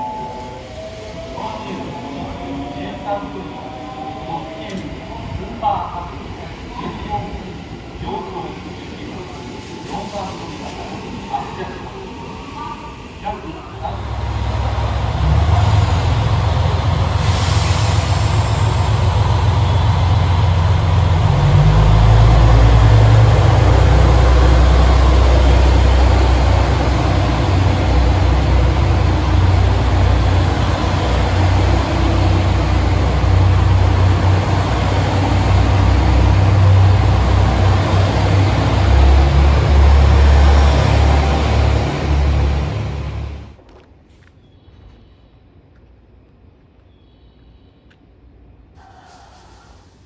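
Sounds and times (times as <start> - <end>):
diesel train engine rumble: 0.0 - 44.3, 44.9 - 50.0
brief hiss: 48.8 - 50.0.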